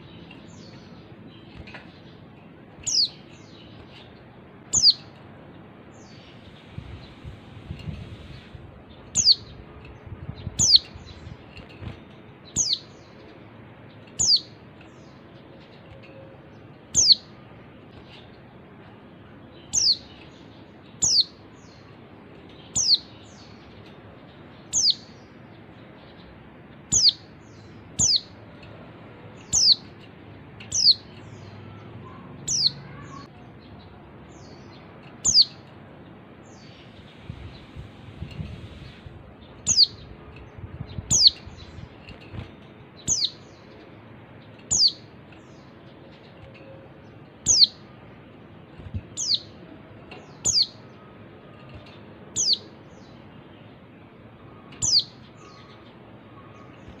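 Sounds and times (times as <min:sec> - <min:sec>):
steady low hiss: 0:00.0 - 0:31.6, 0:33.5 - 0:57.0
bird high downward calls: 0:02.8 - 0:04.0, 0:04.6 - 0:05.2, 0:09.1 - 0:09.6, 0:10.5 - 0:11.3, 0:12.5 - 0:13.0, 0:14.2 - 0:14.6, 0:16.9 - 0:18.2, 0:19.6 - 0:20.3, 0:21.0 - 0:21.9, 0:26.9 - 0:28.4, 0:29.4 - 0:30.0, 0:30.7 - 0:33.5, 0:35.2 - 0:35.7, 0:38.8 - 0:40.2, 0:41.0 - 0:42.4, 0:43.0 - 0:43.8, 0:44.6 - 0:53.2, 0:54.4 - 0:57.0.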